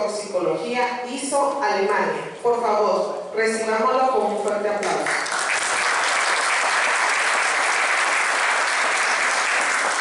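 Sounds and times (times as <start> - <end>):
audience applauding: 5.0 - 10.0.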